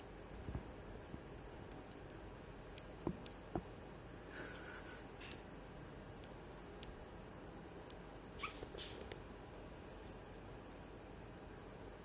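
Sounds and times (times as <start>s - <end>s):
quiet room noise: 0.0s - 12.0s
soft rustle: 9.9s - 10.4s.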